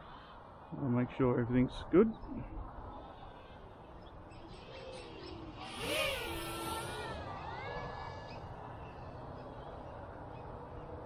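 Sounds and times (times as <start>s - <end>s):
quadcopter motors whining: 4.3s - 9.2s.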